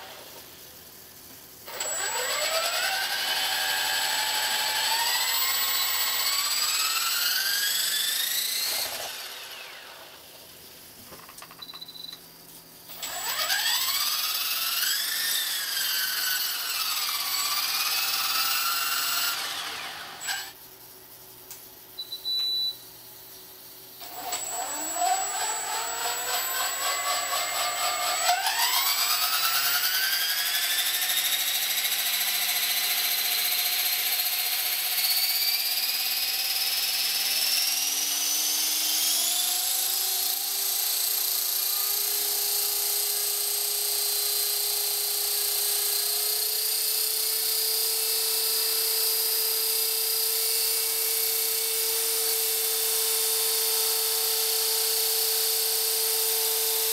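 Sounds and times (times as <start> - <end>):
motor and rotor whine: 1.7 - 10.6, 12.9 - 20.6, 24.0 - 56.9
short high beep: 22.0 - 22.8.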